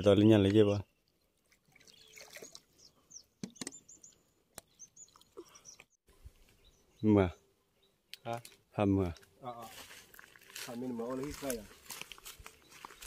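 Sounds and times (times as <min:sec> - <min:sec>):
water splashes from wading: 0:01.4 - 0:02.8
high bird chirps: 0:01.8 - 0:07.1.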